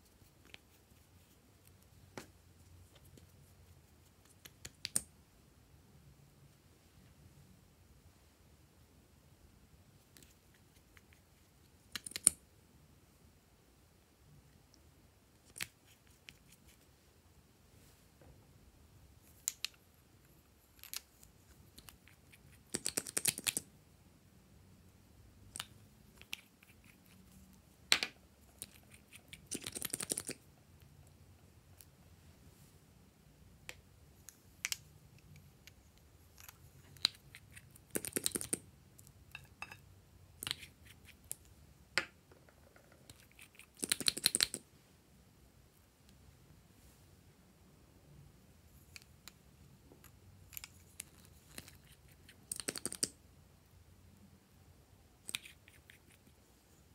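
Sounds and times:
plastic tubes and caps clicking: 42.0 - 44.6, 50.0 - 53.2.

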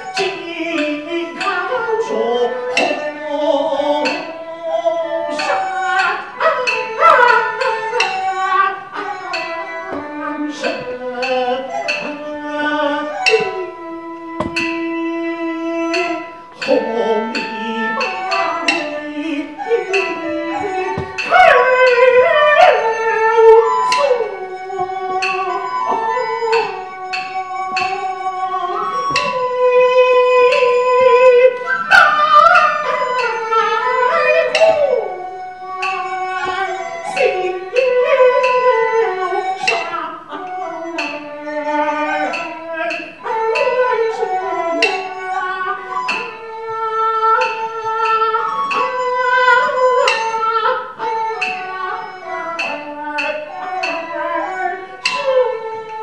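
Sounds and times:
person singing opera melody: 0.0 - 9.1, 9.9 - 46.3
sharp percussion strokes: 13.1 - 39.9.

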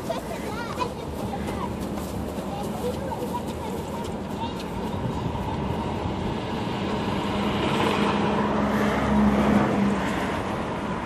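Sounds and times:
vehicle driving past: 5.7 - 11.0.

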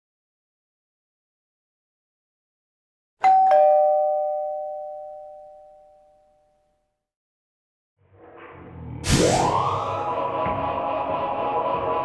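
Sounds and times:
ding-dong doorbell chime: 3.2 - 6.9.

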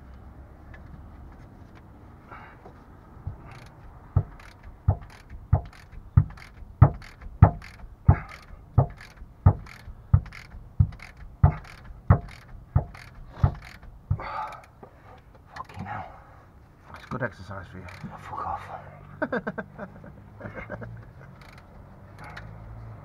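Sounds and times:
ratchet wrench clicking: 3.4 - 14.8, 17.9 - 18.1, 21.4 - 22.5.

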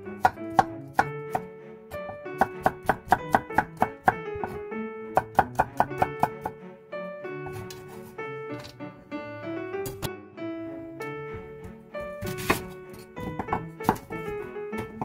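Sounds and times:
instrumental background music: 0.0 - 15.0
knife tapping on wooden board: 2.4 - 4.6, 5.2 - 6.6, 13.2 - 14.2.

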